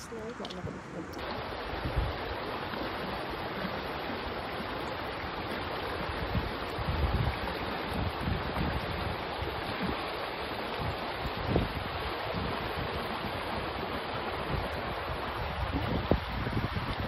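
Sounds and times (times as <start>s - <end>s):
wind buffeting microphone: 0.0s - 3.6s, 5.0s - 17.0s
stream rushing over rocks: 0.0s - 17.0s.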